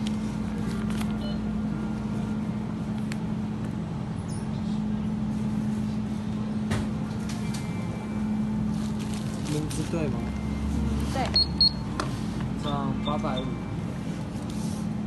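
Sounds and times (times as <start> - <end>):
equipment low hum: 0.0 - 15.0.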